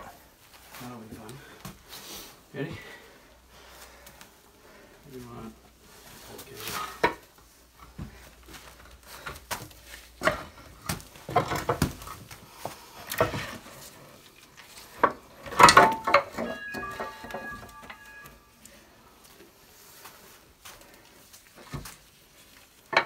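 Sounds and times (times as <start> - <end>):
steel frame clunking on rock: 14.9 - 18.5.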